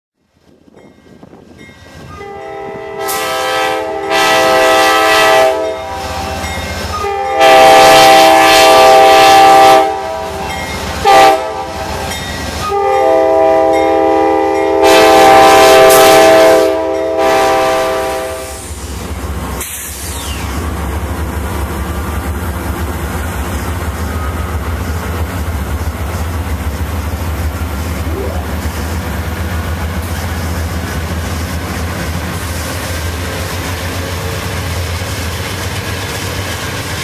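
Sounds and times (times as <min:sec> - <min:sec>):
low rumble of passing train: 0:00.2 - 0:37.0
locomotive air horn blasts: 0:02.1 - 0:18.8.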